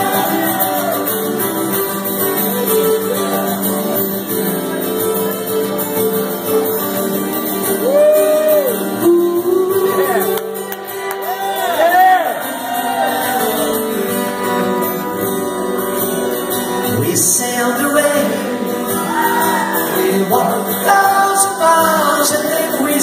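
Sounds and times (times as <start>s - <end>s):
keyboard chords: 0.0s - 17.0s
acoustic guitar chords: 0.0s - 23.0s.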